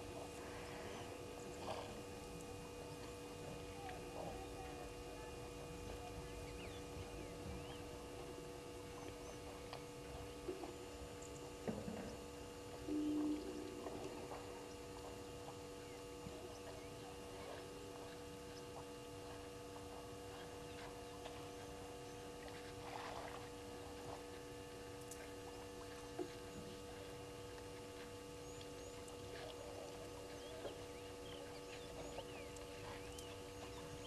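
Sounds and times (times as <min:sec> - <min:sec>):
electrical hum: 0:00.0 - 0:34.0
faint chirps and ticks: 0:08.8 - 0:22.7, 0:24.0 - 0:34.0.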